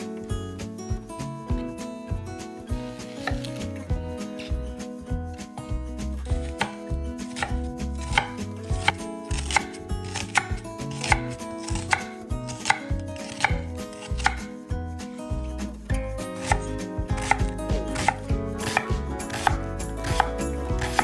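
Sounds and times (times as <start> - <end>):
knife slicing onion on wooden board: 2.7 - 4.6, 5.7 - 14.6, 15.3 - 21.0.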